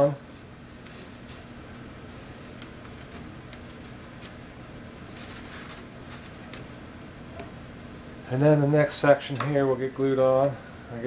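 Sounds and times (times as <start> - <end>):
steady low hum: 0.0 - 11.0
foam board rustling: 5.0 - 6.6.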